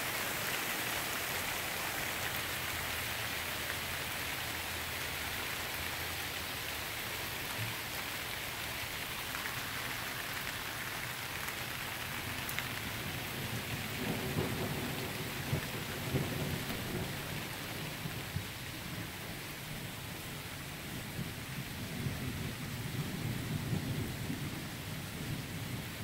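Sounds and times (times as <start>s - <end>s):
heavy rain on pavement: 0.0s - 26.0s
thunder rumbling: 12.9s - 19.2s.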